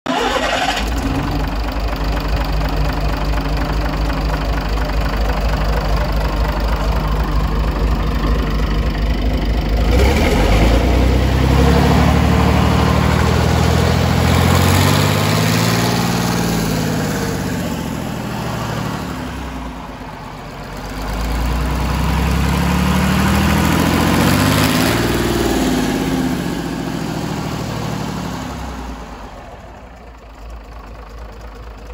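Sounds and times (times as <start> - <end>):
diesel engine idling and revving: 0.0 - 31.9.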